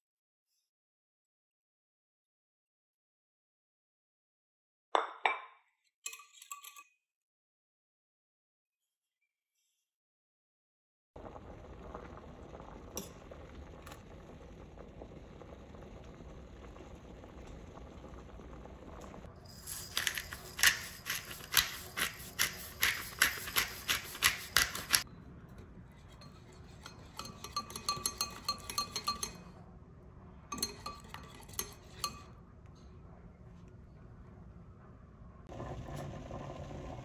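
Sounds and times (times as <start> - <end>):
pasta water boiling: 11.2 - 25.1, 35.4 - 37.0
whisk tapping against glass bowl: 26.8 - 29.5, 30.6 - 32.3.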